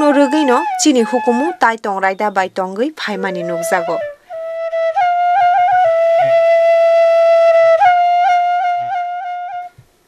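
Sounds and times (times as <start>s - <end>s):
solo flute melody: 0.0s - 2.4s, 3.1s - 9.9s.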